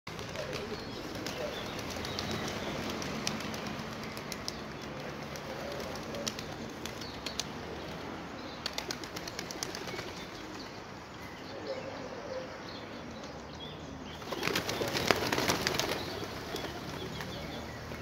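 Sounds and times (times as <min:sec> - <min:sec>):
pigeons cooing: 0:00.1 - 0:07.8, 0:11.5 - 0:12.7, 0:14.2 - 0:17.8.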